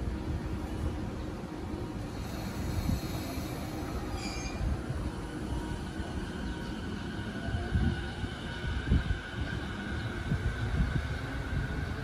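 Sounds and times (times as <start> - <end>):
train wheels rumbling on rail: 0.0 - 12.0
high squeal: 3.8 - 4.9.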